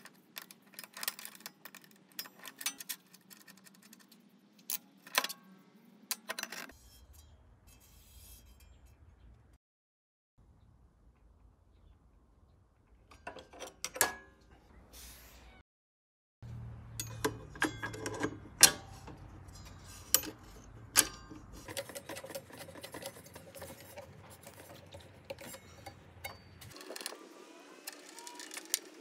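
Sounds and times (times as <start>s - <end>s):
metal parts clicking and clinking: 0.0s - 8.9s, 16.9s - 29.0s.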